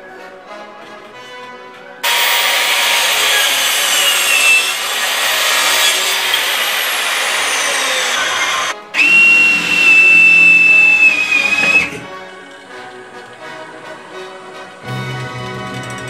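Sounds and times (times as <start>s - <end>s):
cordless drill drilling wood: 2.0s - 12.0s
mitre saw cutting wood: 2.0s - 12.1s.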